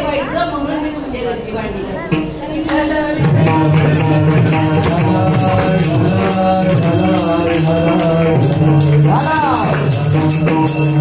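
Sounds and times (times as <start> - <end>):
hand cymbals clashing: 3.8 - 11.0.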